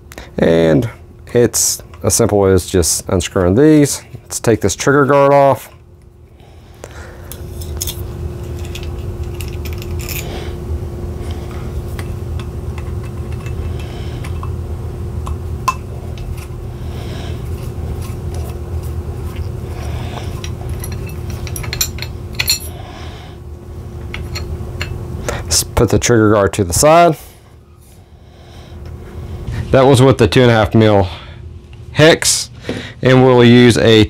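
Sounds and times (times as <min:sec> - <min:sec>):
steady low hum: 0:00.0 - 0:34.0
screws being handled: 0:07.3 - 0:10.4, 0:11.9 - 0:14.5, 0:17.5 - 0:22.8.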